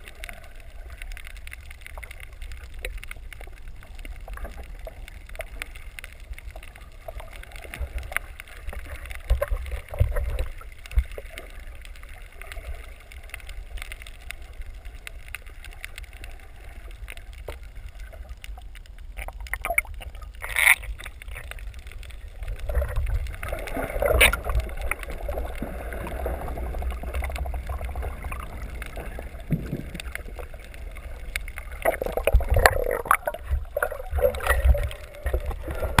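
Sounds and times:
bubbling water: 0:00.0 - 0:36.0
muffled underwater rumble: 0:00.0 - 0:36.0
underwater clicks: 0:00.0 - 0:36.0
splashing: 0:22.7 - 0:36.0.

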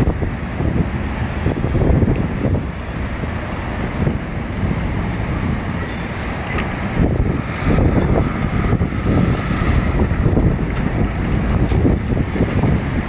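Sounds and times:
traffic rumbling past: 0:00.0 - 0:13.0
thin high squeal: 0:04.9 - 0:06.6.

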